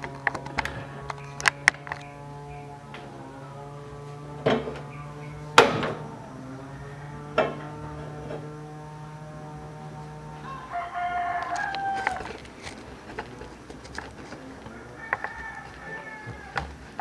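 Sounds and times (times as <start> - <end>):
rooster crowing: 2.0 - 17.0.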